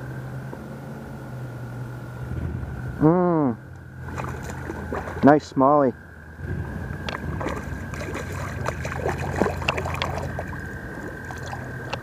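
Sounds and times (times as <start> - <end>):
steady high tone hum: 0.0 - 12.0
fish splashing at water surface: 4.0 - 5.3, 7.1 - 12.0.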